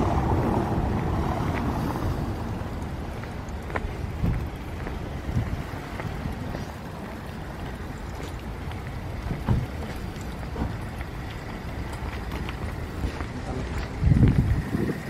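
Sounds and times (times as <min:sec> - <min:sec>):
wind rumbling on microphone: 0:00.0 - 0:15.0
low thumps: 0:09.2 - 0:10.9.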